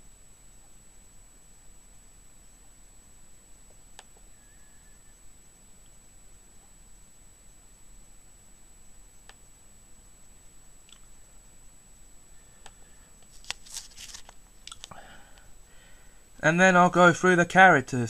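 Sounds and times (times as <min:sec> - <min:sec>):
room hiss: 0:00.0 - 0:18.0
steady high whine: 0:00.0 - 0:18.0
computer mouse clicks: 0:03.9 - 0:04.3, 0:09.2 - 0:09.4.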